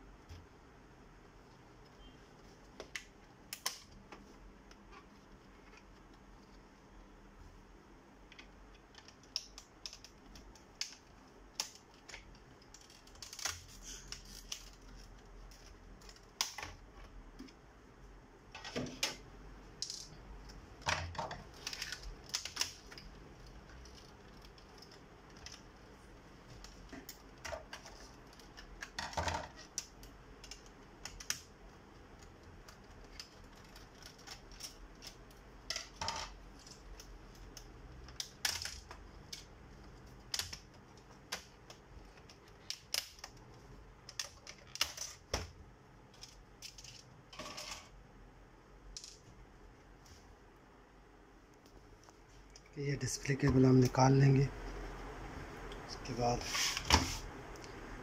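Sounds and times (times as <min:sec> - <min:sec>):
metallic rattles of small parts: 0:46.1 - 0:47.9.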